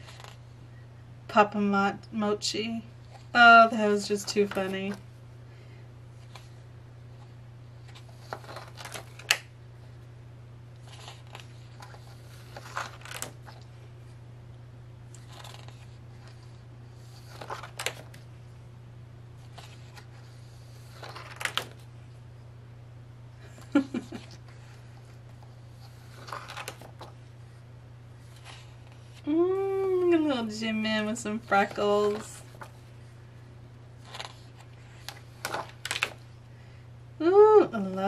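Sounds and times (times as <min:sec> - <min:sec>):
pages turning rustle: 0:00.0 - 0:00.4, 0:04.0 - 0:05.0, 0:07.2 - 0:09.5, 0:10.8 - 0:13.7, 0:15.1 - 0:18.3, 0:19.4 - 0:21.9, 0:25.8 - 0:27.3, 0:28.2 - 0:29.2, 0:31.0 - 0:33.1, 0:34.0 - 0:36.3.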